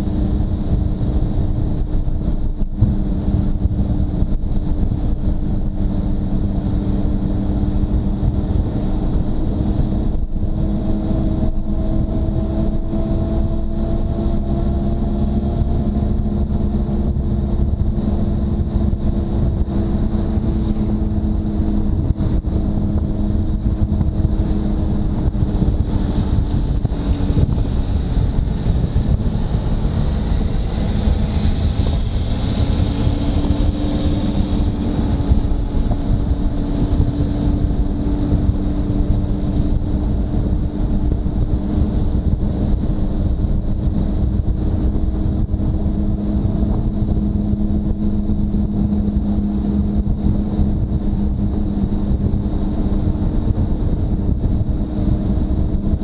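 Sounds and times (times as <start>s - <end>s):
motorcycle engine cruising: 0.0s - 56.0s
wind and road noise: 0.0s - 56.0s.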